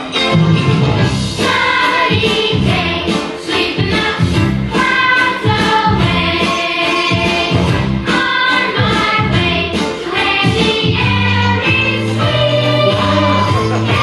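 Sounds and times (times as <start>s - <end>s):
group of voices singing: 1.4s - 14.0s
repeating bass line: 10.9s - 14.0s.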